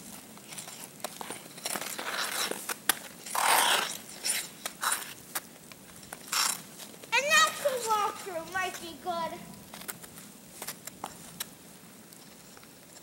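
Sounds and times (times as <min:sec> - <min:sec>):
ice skate blades scraping ice: 0:00.0 - 0:11.6.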